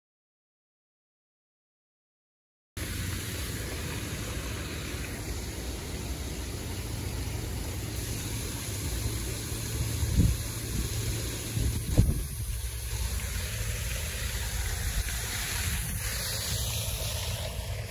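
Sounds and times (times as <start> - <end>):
water from small waterfall: 2.8 - 17.9
wind rumble on microphone: 9.6 - 17.9.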